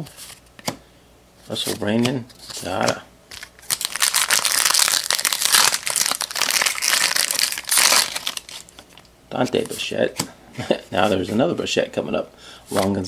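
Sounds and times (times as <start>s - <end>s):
card pack wrapper crinkling: 2.4s - 9.7s.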